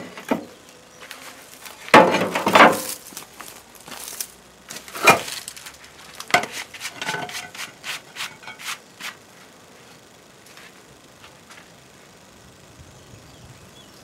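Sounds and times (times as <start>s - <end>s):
roof tiles and wood knocking: 1.9s - 3.0s.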